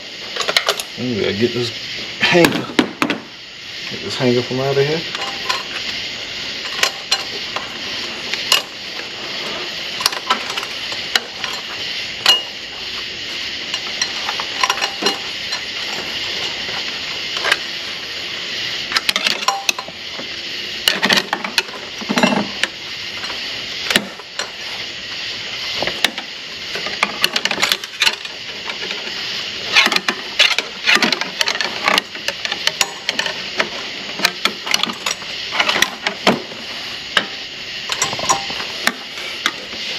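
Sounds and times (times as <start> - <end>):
steady hiss: 0.0 - 39.9
metal tools clinking: 5.1 - 5.8, 10.0 - 12.6, 13.7 - 16.6, 37.9 - 38.7.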